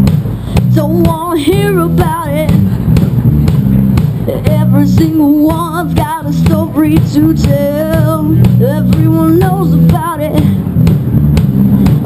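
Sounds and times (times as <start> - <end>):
drums: 0.0 - 12.0
guitar and bass riff: 0.0 - 12.0
person singing: 4.3 - 10.6.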